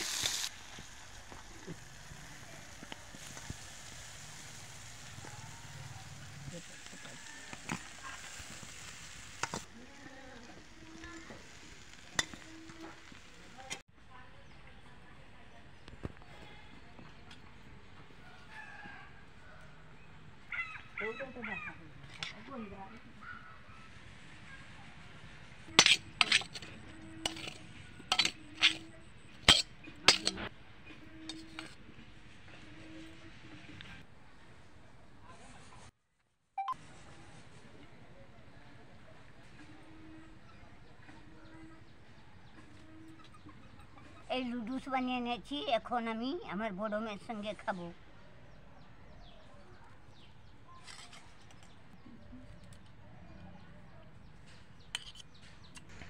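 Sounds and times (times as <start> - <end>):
noodles sizzling in pan: 0.0 - 13.8
metal spatula clinking on pan: 25.8 - 30.5.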